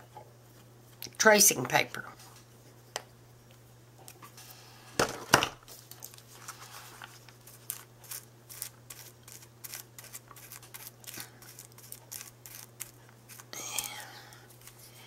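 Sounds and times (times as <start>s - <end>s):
paper pages rustling: 5.7s - 13.5s
small paper crackles and clicks: 5.8s - 13.5s.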